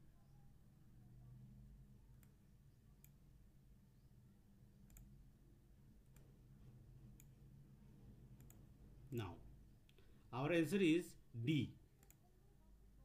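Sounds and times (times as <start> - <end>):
computer mouse clicks: 2.2 - 2.4, 3.0 - 3.2, 4.8 - 5.2, 7.1 - 7.4, 8.4 - 8.7, 12.0 - 12.3.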